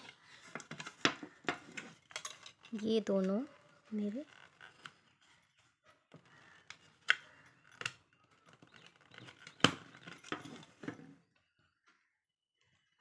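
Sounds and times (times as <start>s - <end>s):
plastic parts clicking: 0.0s - 3.4s.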